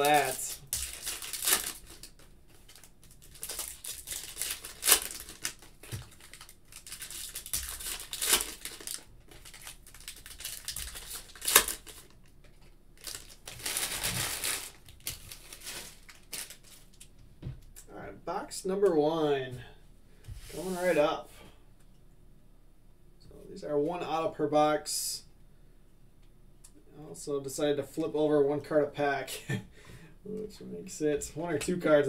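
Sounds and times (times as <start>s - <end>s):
foil wrappers crinkling and tearing: 0.0s - 17.1s.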